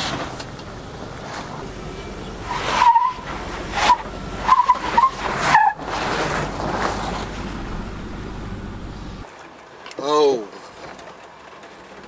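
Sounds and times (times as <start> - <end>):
steady low rumble: 0.4 - 9.2
tyres squealing on rock: 2.3 - 7.3.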